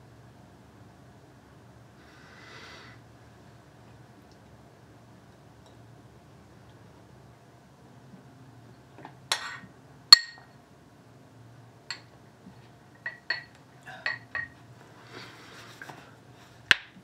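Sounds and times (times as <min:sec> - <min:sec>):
spoon clinking ceramic bowl: 0:09.3 - 0:10.5, 0:11.9 - 0:12.1, 0:13.0 - 0:14.6.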